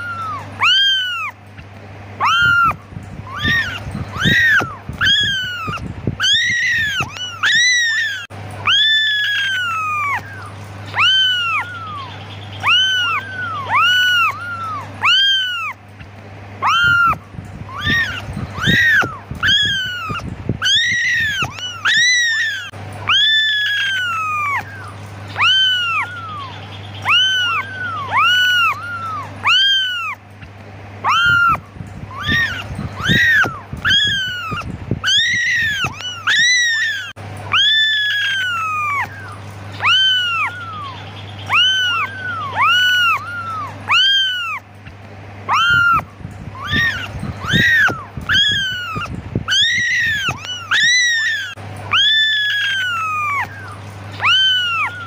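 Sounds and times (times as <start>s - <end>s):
kittens mewing: 0.0s - 55.0s.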